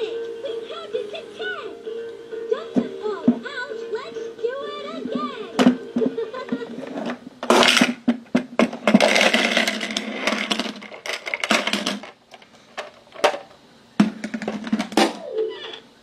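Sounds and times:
piggy bank buzzing rattle: 5.8 - 15.8.

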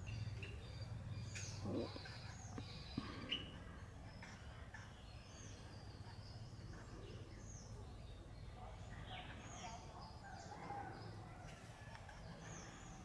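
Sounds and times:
bird chirps: 0.0 - 8.5.

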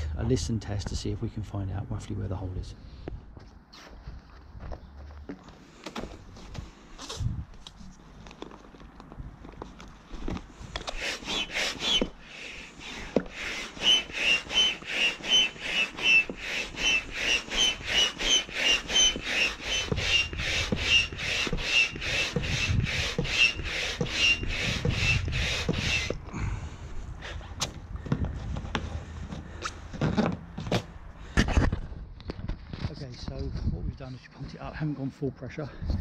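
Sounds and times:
hand pump hissing strokes: 10.6 - 26.5.

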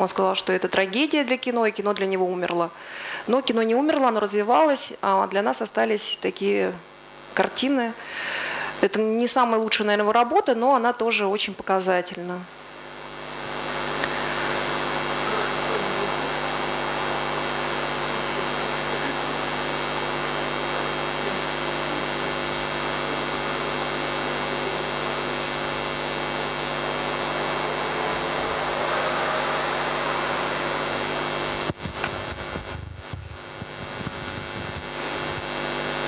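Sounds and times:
soundtrack hiss: 12.6 - 36.0
low hum: 24.9 - 34.9.

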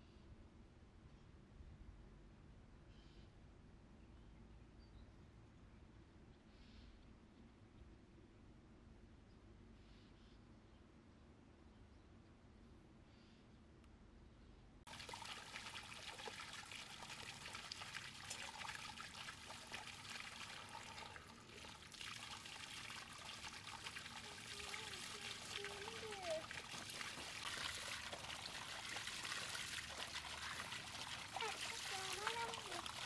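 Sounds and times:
trickling running water: 14.9 - 33.0.

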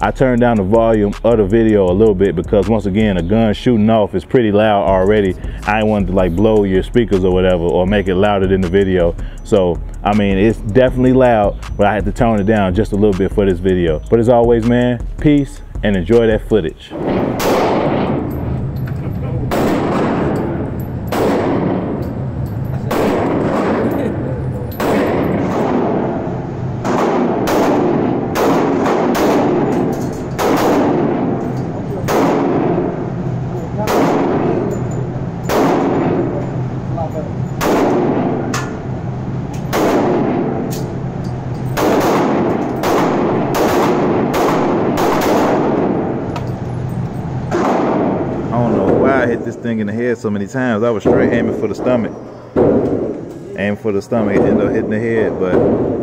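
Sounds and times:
ringing echo off walls: 0.0 - 56.0
pistol shots indoors: 16.9 - 18.9, 19.5 - 49.0, 51.0 - 53.4, 54.3 - 56.0.

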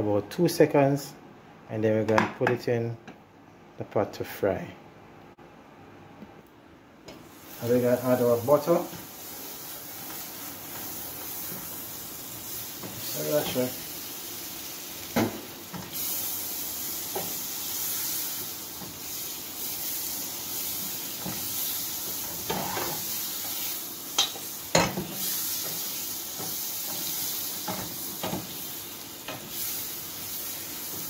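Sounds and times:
butter sizzling in frying pan: 7.1 - 31.0.

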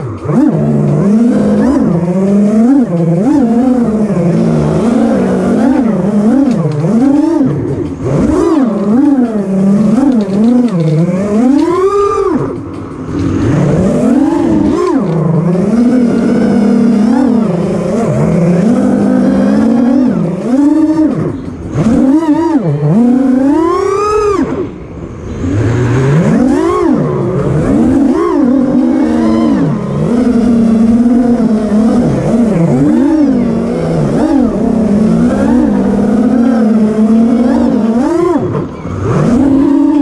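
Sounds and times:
quadcopter motors whining: 0.0 - 40.0.

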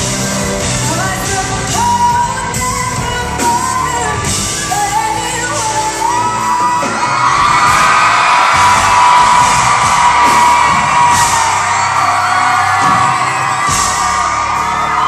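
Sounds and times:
live band with electric guitars: 0.0 - 15.0
woman singing: 0.5 - 7.1.

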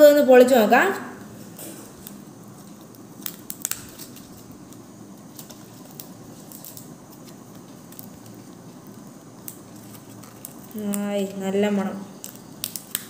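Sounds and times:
dry leaf crackling as peeled: 1.8 - 13.0.

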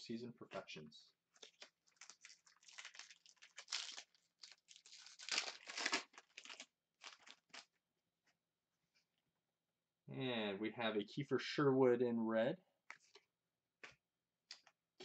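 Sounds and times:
wrapper crinkling and tearing: 1.3 - 7.8.

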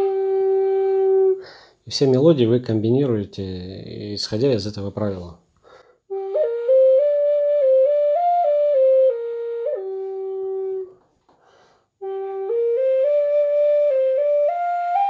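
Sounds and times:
wooden flute melody: 0.0 - 2.8, 6.1 - 11.3, 12.0 - 15.0
breath: 1.4 - 1.8, 5.6 - 6.0, 11.3 - 12.0.

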